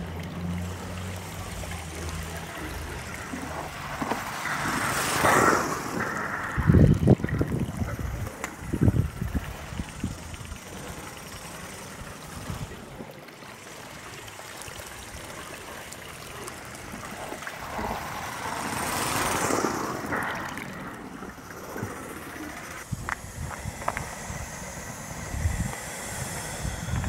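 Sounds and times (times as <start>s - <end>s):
model steam locomotive hissing: 0.0s - 6.8s, 7.9s - 13.0s, 18.0s - 20.3s, 21.3s - 27.0s.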